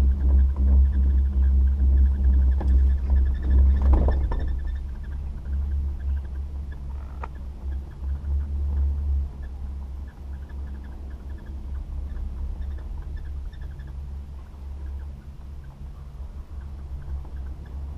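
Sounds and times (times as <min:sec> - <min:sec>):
wind buffeting microphone: 0:00.0 - 0:17.9
faint clicks: 0:06.0 - 0:07.8.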